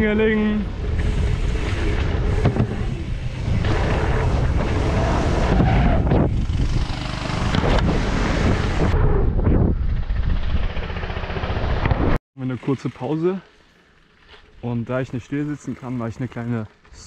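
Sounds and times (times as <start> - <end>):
wind buffeting microphone: 0.0 - 11.0
bike rolling noise: 0.0 - 17.0.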